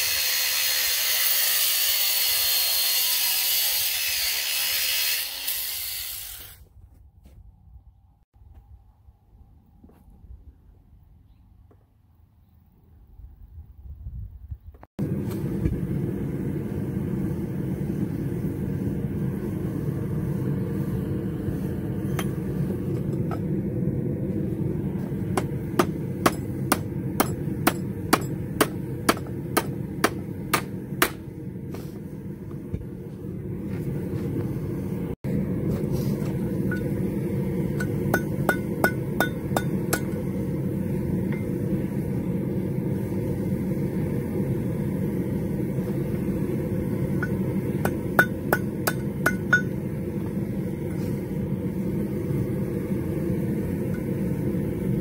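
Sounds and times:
low rumble: 13.0s - 55.0s
hammer striking metal: 25.3s - 31.2s, 37.8s - 40.3s, 47.2s - 49.8s.

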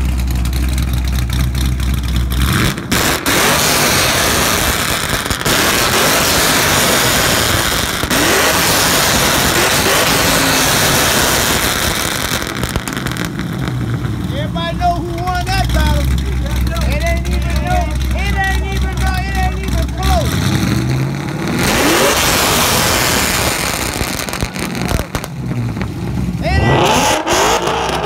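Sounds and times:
car engine idling and revving: 0.0s - 28.0s.

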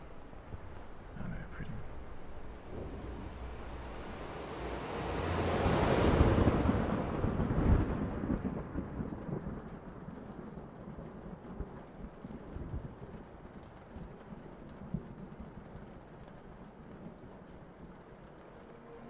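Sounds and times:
background hiss: 0.0s - 6.4s, 12.4s - 19.0s
thunder rolling: 0.0s - 19.0s.

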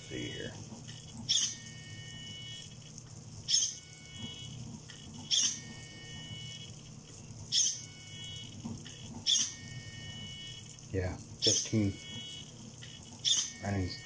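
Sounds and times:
servo whirring: 0.0s - 2.8s, 11.4s - 14.0s.

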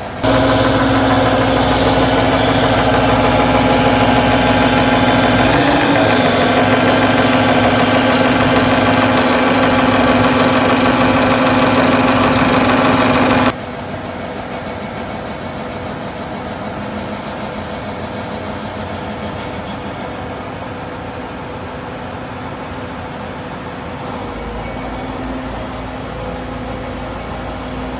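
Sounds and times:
machine drone: 0.0s - 20.8s.

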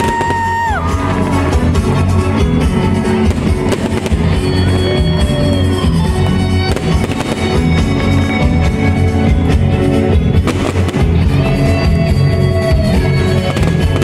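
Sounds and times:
fireworks crackling and popping: 0.0s - 14.0s
loud music: 0.0s - 14.0s.

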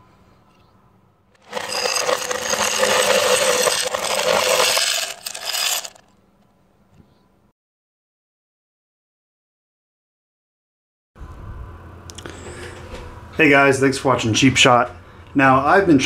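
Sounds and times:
cartridges pouring into metal can: 1.4s - 6.0s.

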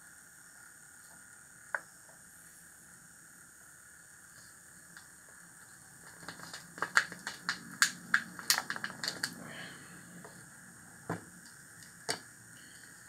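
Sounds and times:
sharp plastic clicks and crackles: 6.0s - 9.4s.

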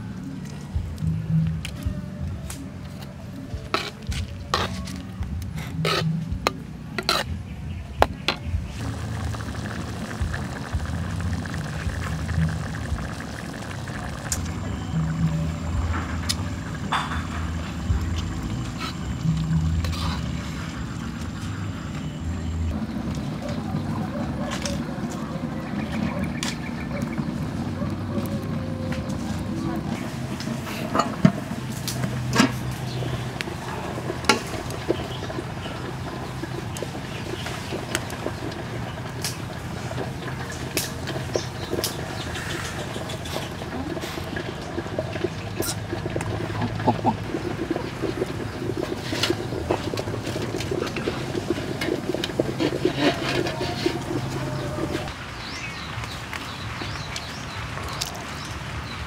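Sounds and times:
low hum: 0.0s - 37.1s
metal ladle scraping a wok: 3.7s - 7.4s, 14.7s - 21.9s, 45.1s - 55.1s
sauce bubbling and sizzling: 8.6s - 23.3s, 25.4s - 59.0s
metal pot lid clanking: 16.0s - 18.3s.

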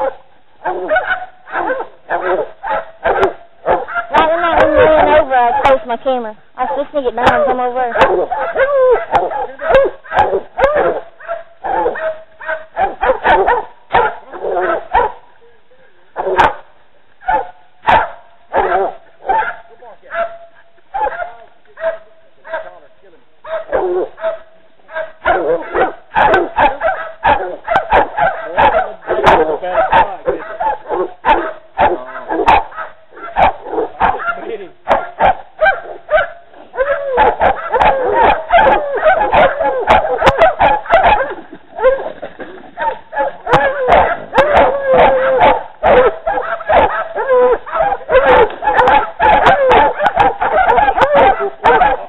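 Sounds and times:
dogs barking and yipping: 0.0s - 15.4s, 16.2s - 52.0s
dogs whining: 42.8s - 52.0s.

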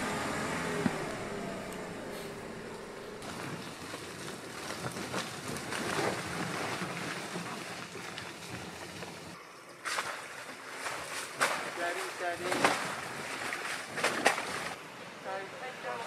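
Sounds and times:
vehicle engine running low: 0.0s - 5.5s
tyre and ground noise: 0.0s - 9.3s
tyres crackling on dirt: 0.0s - 10.2s.

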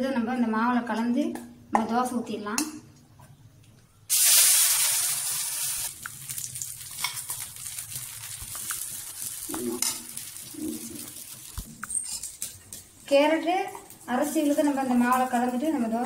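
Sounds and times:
batter sizzling on a hot pan: 4.1s - 12.5s.

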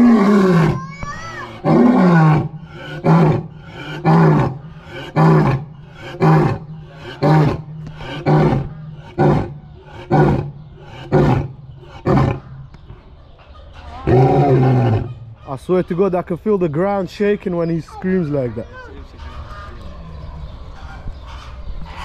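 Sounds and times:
lion roaring: 0.0s - 0.8s, 1.5s - 12.4s, 14.0s - 15.1s.

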